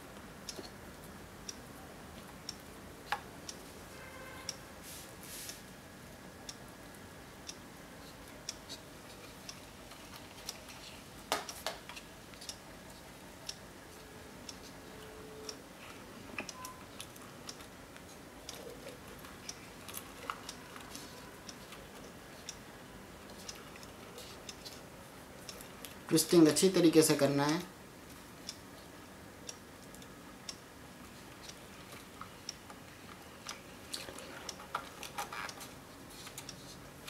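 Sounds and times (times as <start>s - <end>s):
faint clock ticking: 0.0s - 4.8s, 5.5s - 37.0s
wires twisting clicks and crackles: 15.5s - 22.6s, 31.0s - 37.0s.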